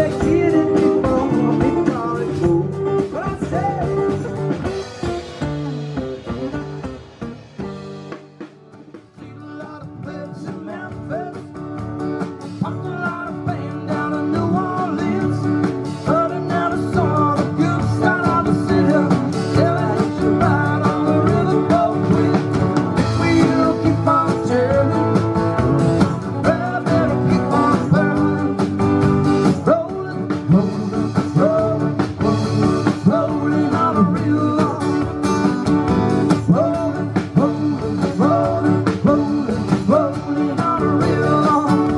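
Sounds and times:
man singing: 0.0s - 5.0s, 8.8s - 41.9s
acoustic guitars strumming: 0.0s - 41.9s
drums: 0.0s - 41.9s.

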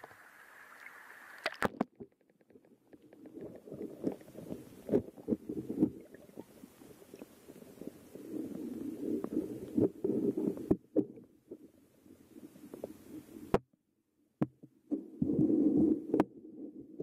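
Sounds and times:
underwater clicks and knocks: 1.4s - 6.6s, 14.4s - 14.8s
muffled underwater water rumble: 2.8s - 13.6s.

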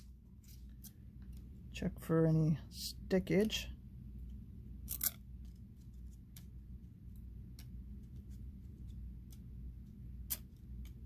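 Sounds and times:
low steady hum: 0.0s - 11.0s
cards being peeled apart: 4.8s - 6.5s, 10.2s - 11.0s.

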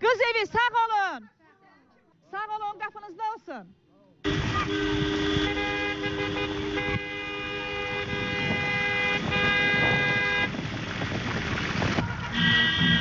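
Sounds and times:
vehicle noise: 4.2s - 13.0s
car horns honking: 4.3s - 10.7s, 12.3s - 13.0s.

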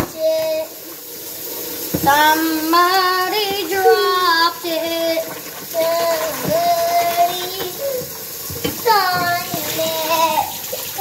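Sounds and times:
girl singing long notes: 8.8s - 10.5s.

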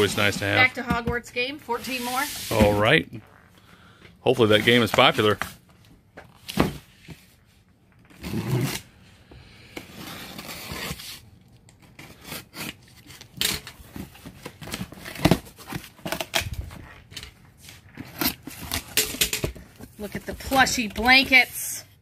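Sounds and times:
cardboard flaps scraping and rustling: 0.0s - 0.7s, 1.8s - 3.0s
box cutter slicing packing tape: 8.2s - 8.9s, 10.0s - 11.2s.

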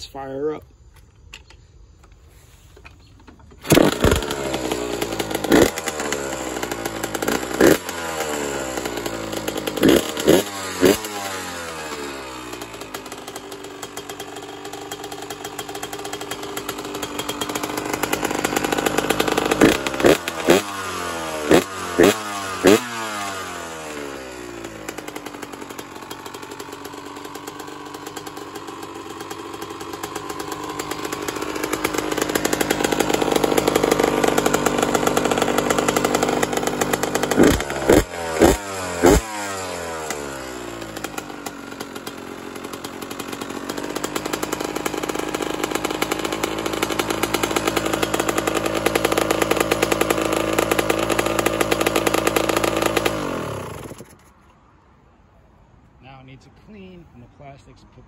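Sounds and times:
two-stroke engine revving: 2.0s - 54.6s.

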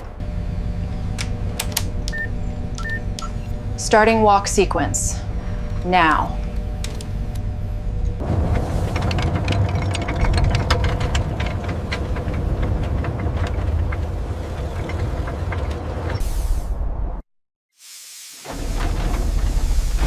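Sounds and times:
gears clanking and clicking: 0.0s - 4.7s, 5.6s - 16.2s, 18.5s - 20.0s
deep mechanical rumble: 0.0s - 17.2s, 18.5s - 20.0s
short steam hiss: 17.8s - 20.0s.

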